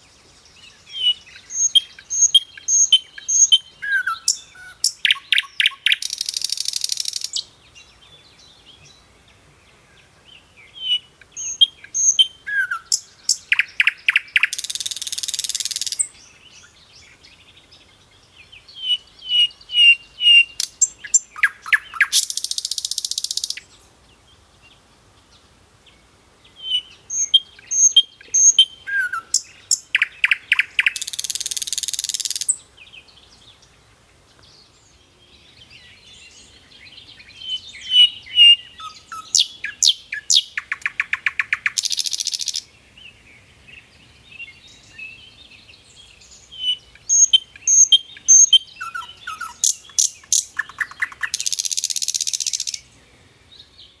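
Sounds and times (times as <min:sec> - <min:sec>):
bird chirps and trills: 0:00.7 - 0:07.5, 0:10.7 - 0:17.5, 0:18.1 - 0:23.9, 0:26.5 - 0:32.6, 0:35.6 - 0:42.7, 0:43.5 - 0:52.9.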